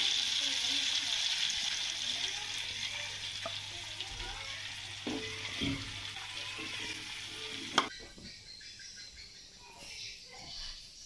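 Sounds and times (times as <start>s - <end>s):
sauce sizzling in a wok: 0.0s - 7.9s.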